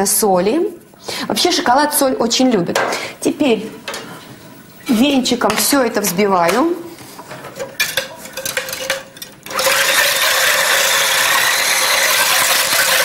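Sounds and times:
immersion blender whisking: 8.4 - 13.0.

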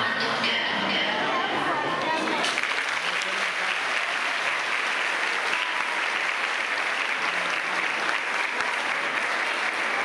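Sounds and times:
faint voices: 0.0 - 10.0
audience applauding: 2.3 - 10.0.

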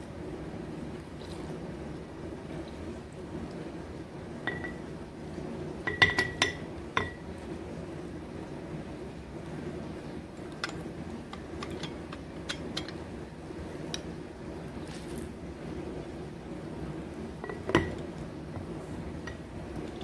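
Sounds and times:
glass jar clinking: 4.5 - 4.8.

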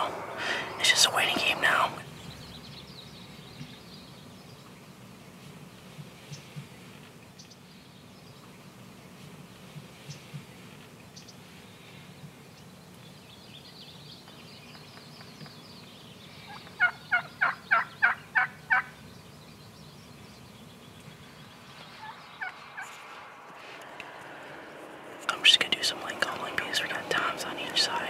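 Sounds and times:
songbird twittering: 12.5 - 24.4
turkey yelping: 16.6 - 18.9.

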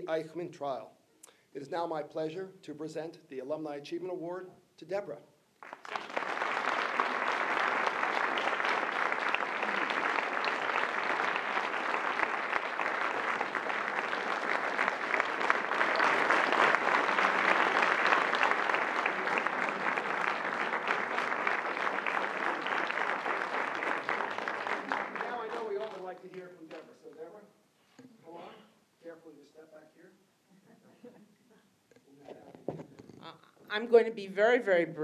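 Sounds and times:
audience applauding: 5.6 - 27.0.

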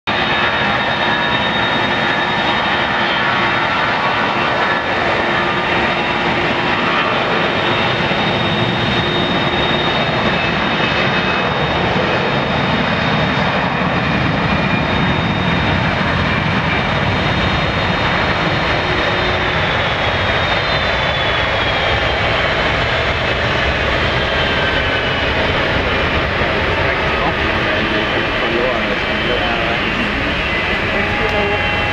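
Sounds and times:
jet engines roaring: 0.1 - 31.9.

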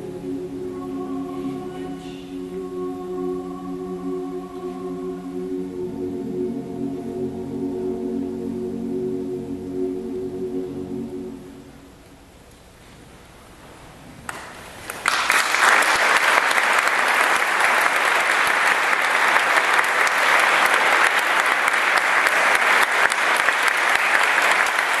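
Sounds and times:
audience applause: 14.3 - 25.0.

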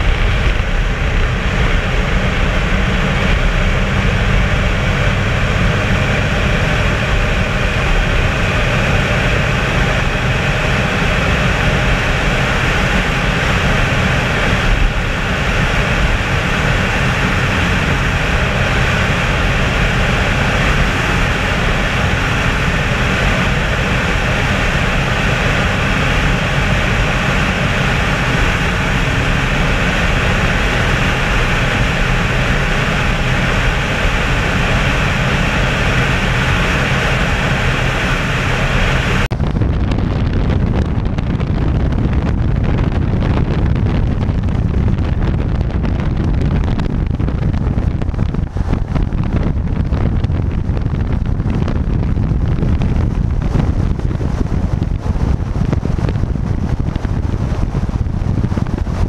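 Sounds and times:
truck engine cruising: 0.0 - 59.0
tyre noise on road: 0.0 - 59.0
wind rushing over camera: 0.0 - 59.0.

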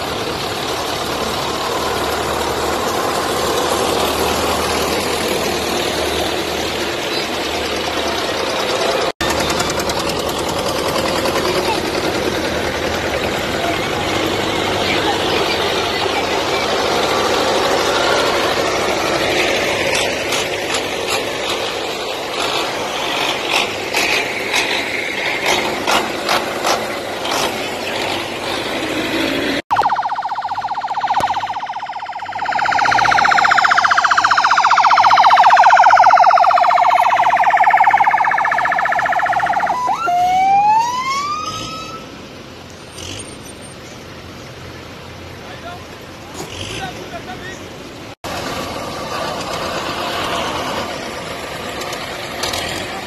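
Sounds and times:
tractor engines running: 0.0 - 53.0
vehicle siren: 29.7 - 42.1.

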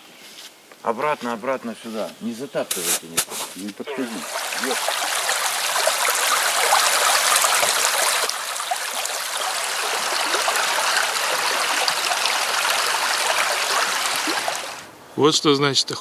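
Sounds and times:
creek water rushing over stones: 3.5 - 14.9.

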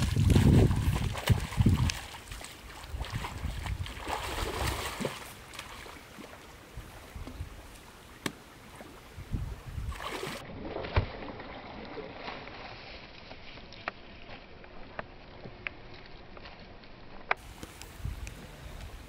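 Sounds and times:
fish thrashing and splashing: 0.0 - 6.3.

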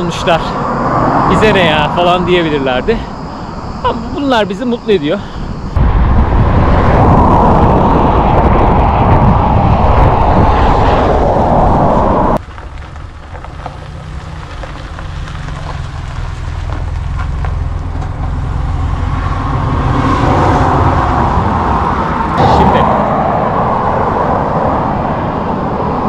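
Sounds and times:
wind rumble on microphone: 5.2 - 26.0.

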